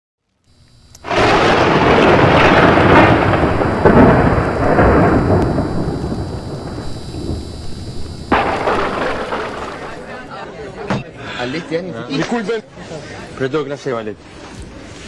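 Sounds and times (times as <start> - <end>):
thunder crack and rumble: 1.0 - 10.2.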